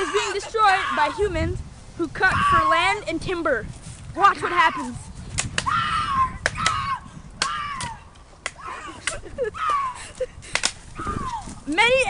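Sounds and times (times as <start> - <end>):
person yelling: 2.2 - 3.0, 4.4 - 5.0, 5.7 - 8.0, 8.6 - 10.0
branches cracking: 4.7 - 12.0.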